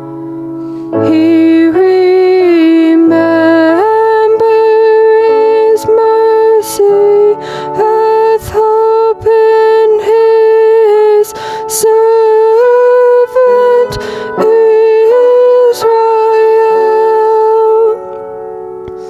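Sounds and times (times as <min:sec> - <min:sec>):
singer breathing: 0:00.3 - 0:01.0, 0:07.4 - 0:07.8, 0:11.4 - 0:11.7, 0:14.0 - 0:14.4
woman singing long held notes: 0:01.0 - 0:18.0.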